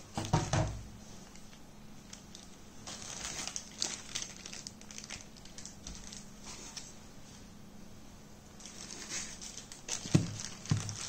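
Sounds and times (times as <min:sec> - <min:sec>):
plastic bag crinkling: 0:01.2 - 0:06.9, 0:08.6 - 0:11.0.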